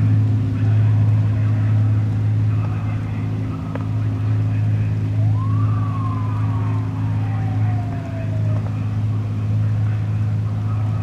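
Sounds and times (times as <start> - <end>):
low engine hum: 0.0 - 11.0
siren wail: 3.7 - 11.0.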